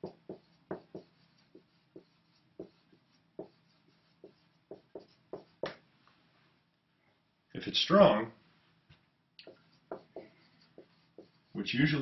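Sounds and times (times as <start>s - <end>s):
marker writing on whiteboard: 0.0s - 5.8s, 9.4s - 12.0s.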